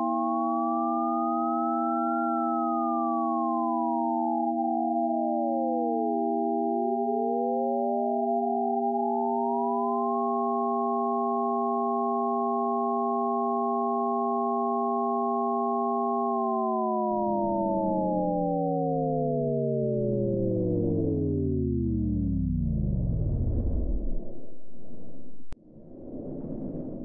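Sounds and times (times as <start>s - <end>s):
electronic sine tone chord: 0.0s - 25.6s
low rumbling noise: 20.8s - 27.0s.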